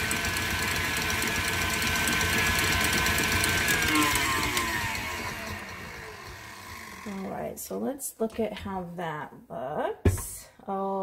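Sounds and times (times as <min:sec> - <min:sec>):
stand mixer motor whine: 0:00.0 - 0:07.3.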